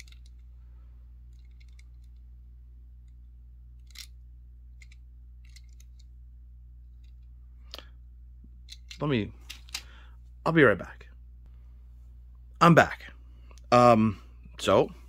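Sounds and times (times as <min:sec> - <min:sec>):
steady low hum: 0:00.0 - 0:15.0
fingers handling toy car clicks: 0:04.8 - 0:06.1.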